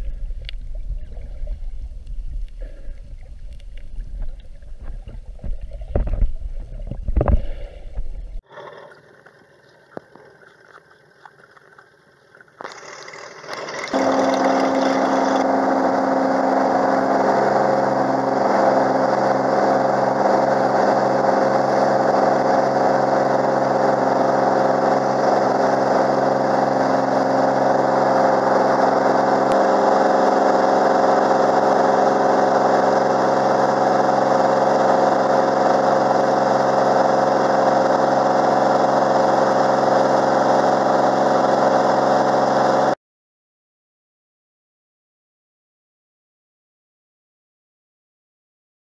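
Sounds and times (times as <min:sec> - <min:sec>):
water sloshing against camera: 0:00.0 - 0:15.4
airplane engine and propeller: 0:13.6 - 0:43.0.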